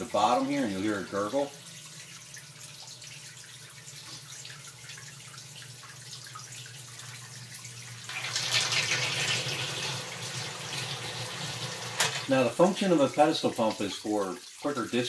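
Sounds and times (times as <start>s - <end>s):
sump pump humming: 0.0s - 14.8s
water gurgling: 0.0s - 15.0s.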